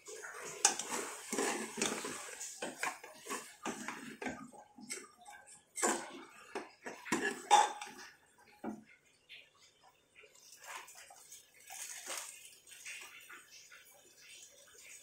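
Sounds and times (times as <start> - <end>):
metal ladle scraping pot: 0.0 - 8.2.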